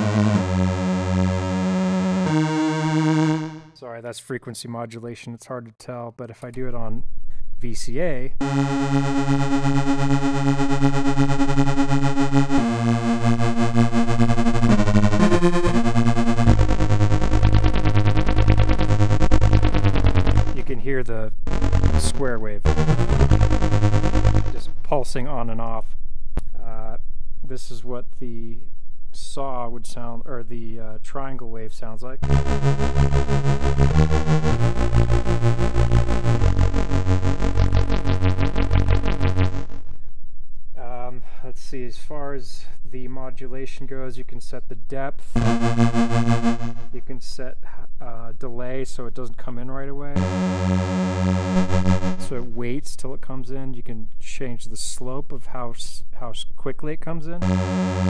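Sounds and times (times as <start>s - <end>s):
pulsing synthesizer notes: 0.0s - 3.8s, 8.4s - 20.8s, 21.4s - 25.0s, 32.2s - 40.0s, 45.4s - 47.0s, 50.2s - 52.5s, 57.4s - 58.0s.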